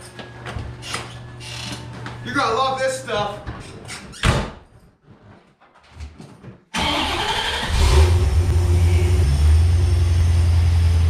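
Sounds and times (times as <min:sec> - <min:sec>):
car engine starting and idling: 0:06.8 - 0:11.0.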